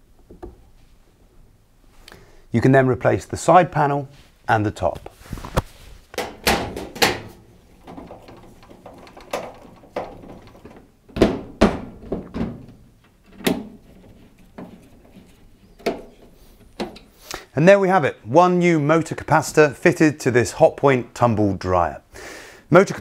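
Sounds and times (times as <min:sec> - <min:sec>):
metal panels knocking: 0:06.2 - 0:17.2.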